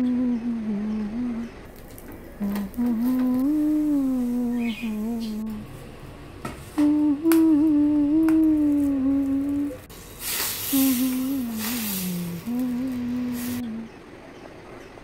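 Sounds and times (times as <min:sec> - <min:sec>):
hummed melody: 0:00.0 - 0:01.7, 0:02.3 - 0:06.0, 0:06.8 - 0:09.9, 0:10.7 - 0:14.2
bursts of hiss: 0:10.0 - 0:13.6.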